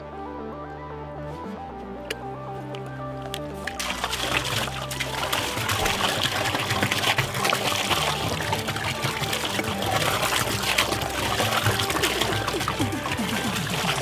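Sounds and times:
soda pouring and splashing: 3.2 - 14.0.

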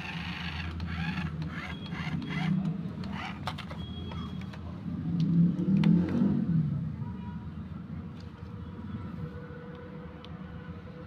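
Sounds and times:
toy car motor whirring: 0.0 - 3.8.

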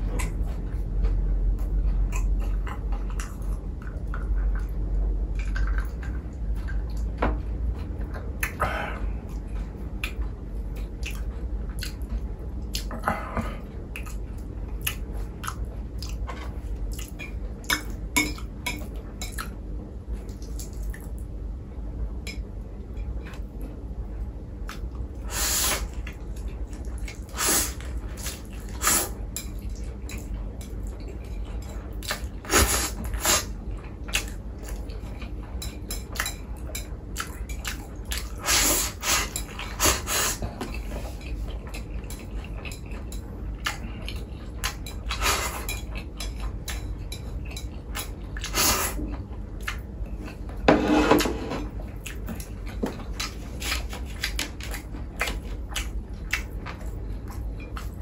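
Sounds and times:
chewing: 7.8 - 19.6, 25.7 - 50.6, 51.6 - 58.0.

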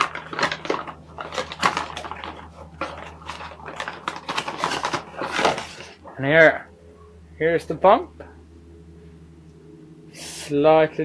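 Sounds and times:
paper and cardboard rustling: 0.0 - 6.1.

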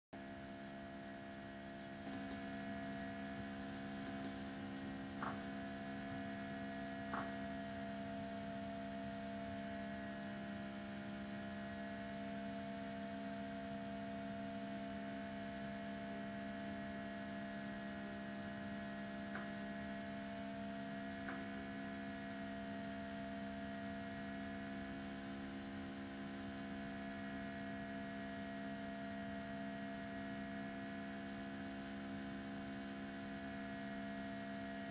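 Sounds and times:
electrical hum: 0.2 - 34.9
faint clicks: 2.0 - 2.4, 4.0 - 4.4.

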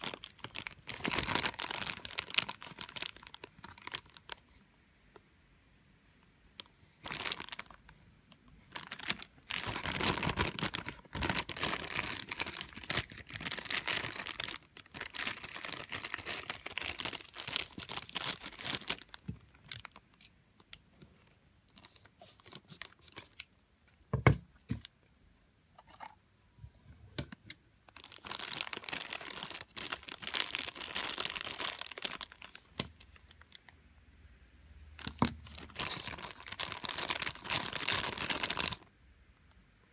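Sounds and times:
plastic bag crinkling: 0.0 - 4.4, 7.0 - 8.0, 8.6 - 20.8, 27.9 - 33.7, 35.0 - 38.9.

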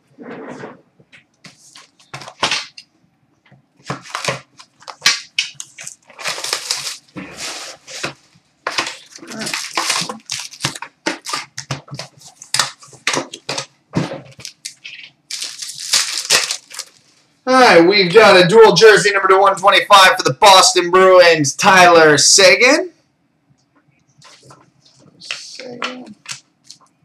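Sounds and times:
wrapping crinkling and tearing: 3.9 - 13.7, 14.3 - 17.3.

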